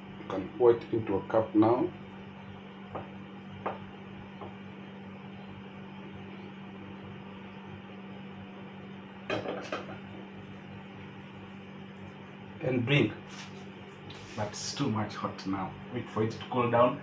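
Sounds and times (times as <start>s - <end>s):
steady low hum: 0.0s - 17.0s
kitchenware knocks: 9.3s - 10.0s.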